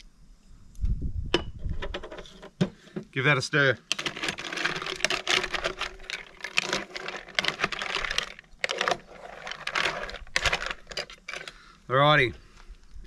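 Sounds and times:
mussel shells clattering in pot: 3.8 - 11.7.

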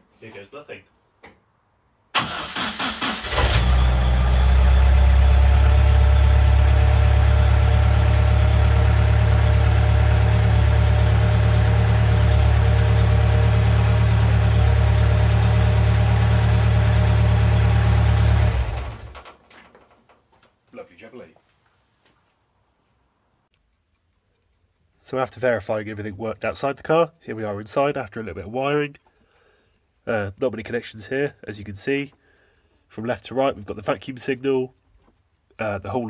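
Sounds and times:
engine cranking on starter: 2.2 - 6.8, 17.6 - 19.4
car engine running: 3.4 - 19.2.

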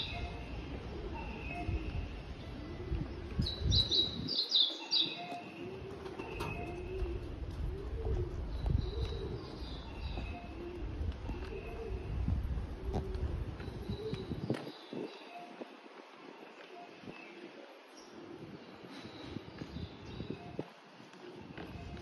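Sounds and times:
pigeons cooing: 0.0 - 22.0.

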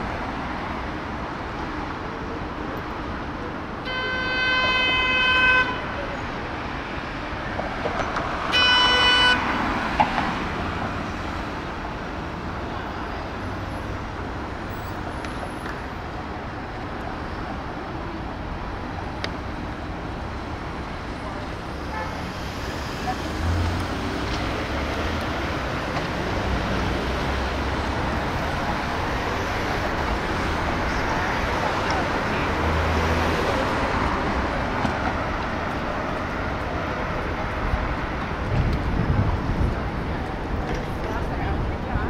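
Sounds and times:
cars passing: 0.0 - 42.0
car horn honking: 3.8 - 6.0, 8.5 - 9.6.

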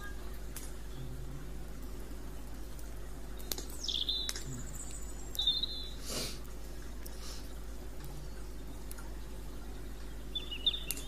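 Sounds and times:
campfire crackling and snapping: 0.0 - 11.0
songbird whistling: 3.4 - 6.0, 10.2 - 11.0.

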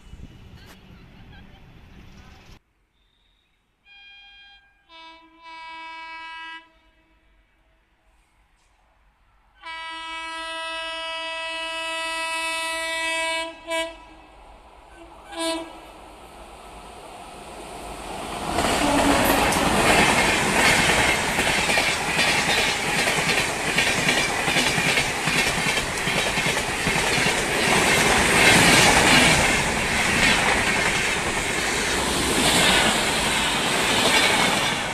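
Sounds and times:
locomotive horn: 3.8 - 7.7, 9.6 - 15.9, 18.7 - 19.7
train coaches rattling over rails: 17.4 - 34.9.

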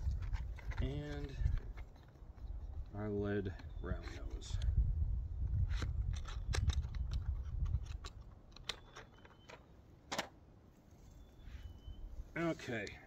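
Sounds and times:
wind rumble on microphone: 0.0 - 8.7.

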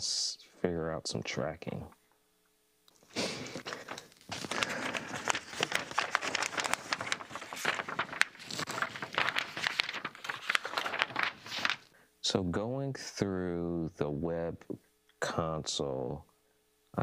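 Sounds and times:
paper rustling and crinkling: 3.3 - 11.9.

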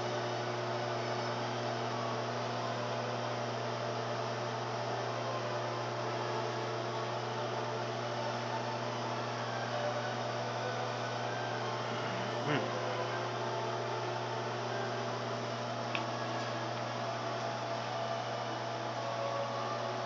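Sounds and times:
microwave oven humming: 0.0 - 20.0.

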